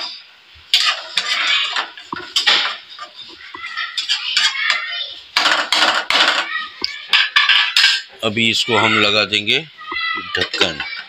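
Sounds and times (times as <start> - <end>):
spoon scraping metal pan: 0.7 - 4.8.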